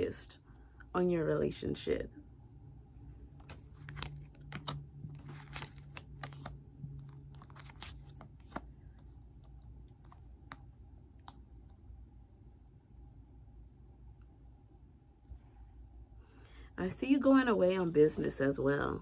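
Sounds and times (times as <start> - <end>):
cards being shuffled and laid down: 3.4 - 11.4.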